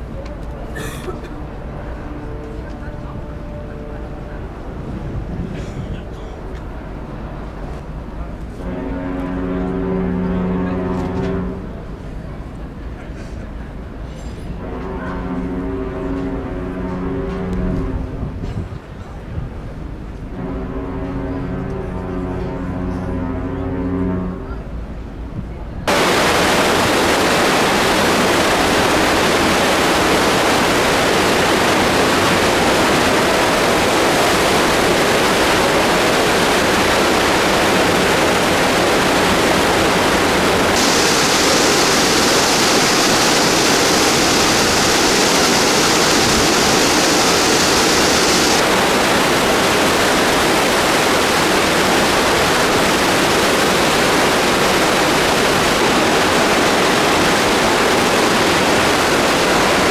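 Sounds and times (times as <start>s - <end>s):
bright hiss: 25.9s - 59.9s
churning water rushing: 25.9s - 59.9s.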